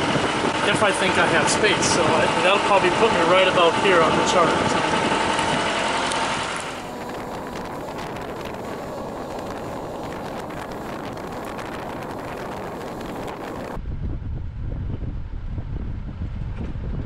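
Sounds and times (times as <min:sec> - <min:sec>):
boat engine humming: 0:00.0 - 0:13.8
wind rushing on microphone: 0:00.0 - 0:17.0.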